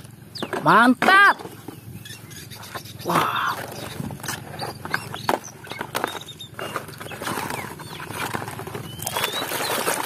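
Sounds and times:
plastic toys clattering in basket: 2.6s - 10.0s.

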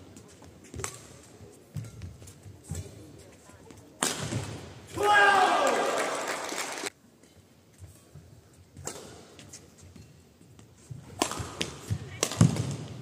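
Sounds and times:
racket striking shuttlecock: 8.8s - 9.3s, 11.2s - 12.9s.

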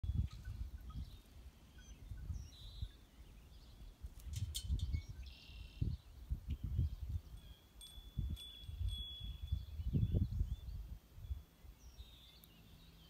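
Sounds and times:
wind buffeting microphone: 0.0s - 12.0s
birds chirping and whistling: 0.1s - 13.0s.

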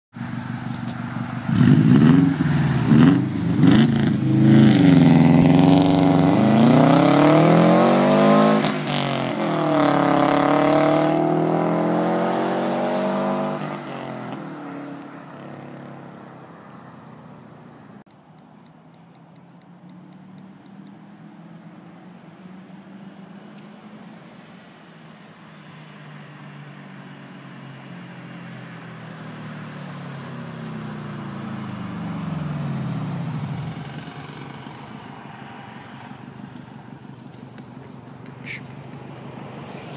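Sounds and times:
turbocharged car engine revving: 1.4s - 14.9s.

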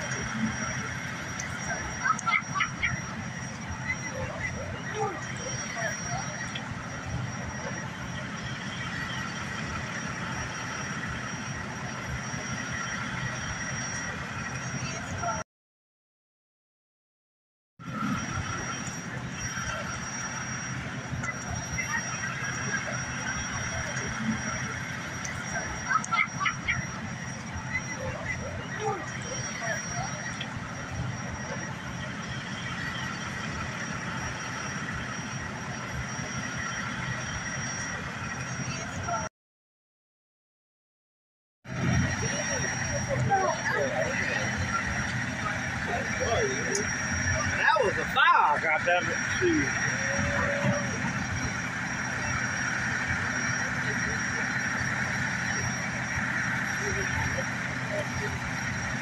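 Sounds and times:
low engine rumble: 0.0s - 15.4s, 17.8s - 39.3s, 41.7s - 59.0s
street noise: 0.0s - 15.4s, 17.8s - 39.3s, 41.7s - 59.0s
thin high whine: 17.8s - 39.3s, 41.7s - 59.0s
vehicle engine idling: 41.7s - 59.0s.

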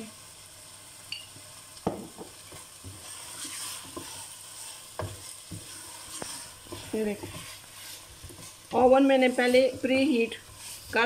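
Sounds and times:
meat sizzling: 0.0s - 11.0s
spoon scraping meat in a pot: 2.4s - 11.0s.

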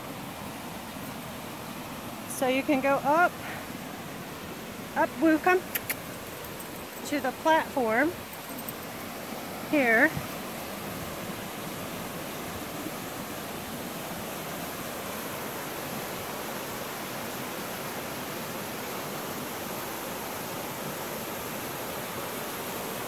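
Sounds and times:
waterfall rushing water: 0.0s - 23.0s.

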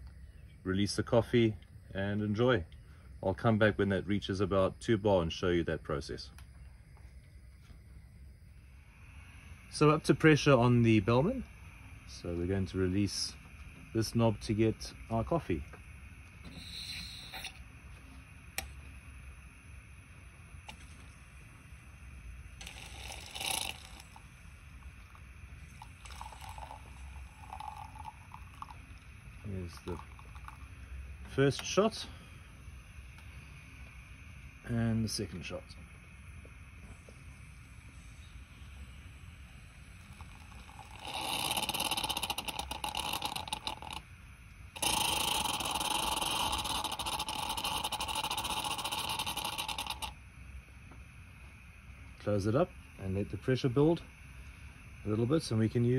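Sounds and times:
low steady rumble: 0.0s - 55.9s
espresso maker hissing and spitting: 8.6s - 33.8s, 36.8s - 50.2s
coffee sputtering and gurgling: 8.6s - 34.0s, 36.4s - 50.2s.

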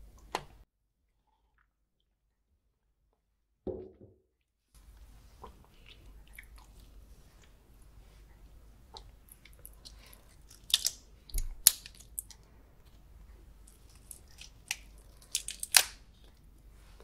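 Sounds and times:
soft chewing: 4.8s - 17.0s.

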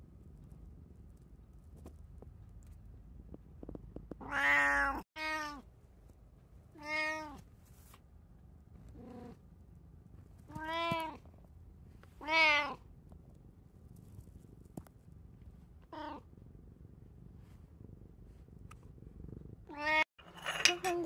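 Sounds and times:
cat meowing: 4.2s - 5.6s, 6.8s - 7.4s, 10.5s - 11.2s, 12.2s - 12.8s, 19.7s - 20.1s.

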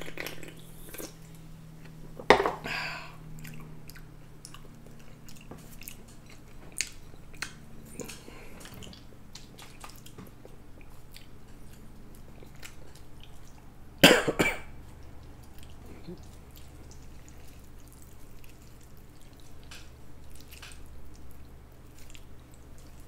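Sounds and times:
chewing with wet mouth clicks: 0.0s - 2.0s, 3.2s - 14.0s, 14.7s - 23.0s
person coughing: 14.0s - 14.7s.

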